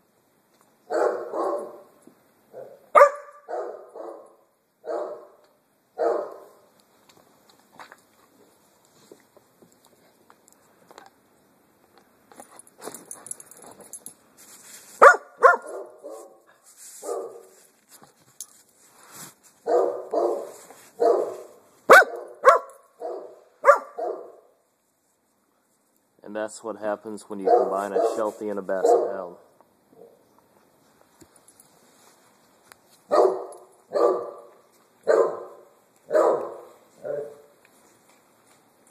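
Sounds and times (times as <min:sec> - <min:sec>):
dog barking: 0:00.9 - 0:01.9, 0:02.5 - 0:05.4, 0:06.0 - 0:06.6, 0:15.0 - 0:16.4, 0:17.0 - 0:17.5, 0:19.6 - 0:24.5, 0:27.4 - 0:29.3, 0:33.1 - 0:37.5.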